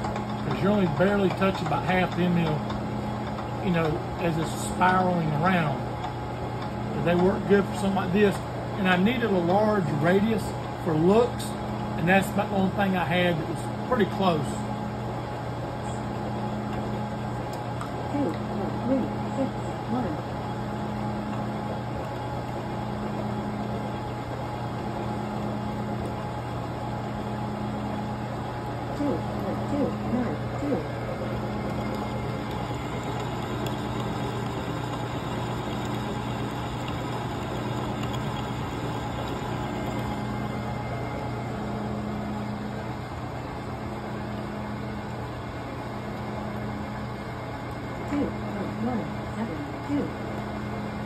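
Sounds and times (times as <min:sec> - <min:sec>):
milling machine motor hum: 0:00.0 - 0:51.0
end mill cutting metal: 0:30.0 - 0:41.8.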